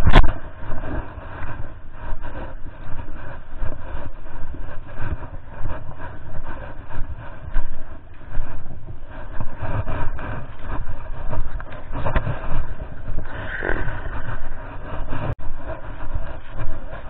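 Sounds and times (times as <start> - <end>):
clothing rubbing on microphone: 0.0 - 17.0.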